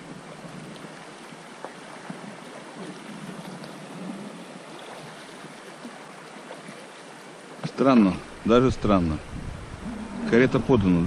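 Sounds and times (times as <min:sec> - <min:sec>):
river water babbling over stones: 0:00.0 - 0:11.0.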